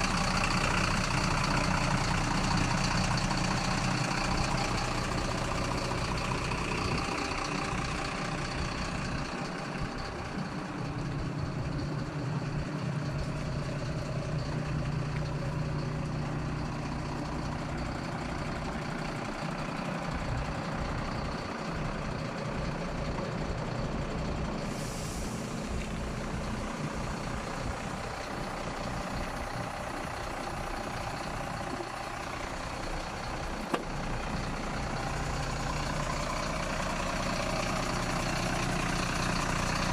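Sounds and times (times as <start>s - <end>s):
diesel truck engine idling: 0.0s - 39.9s
short air hiss: 24.6s - 25.8s.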